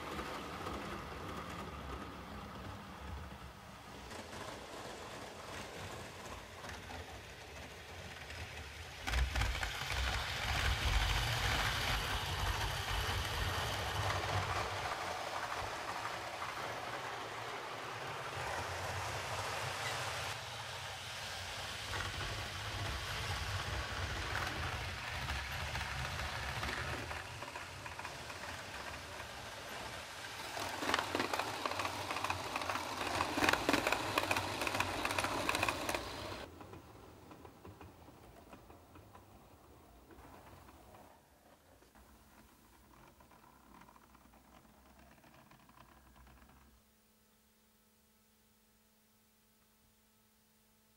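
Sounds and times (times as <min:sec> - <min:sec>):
model train running on track: 0:00.0 - 0:46.5.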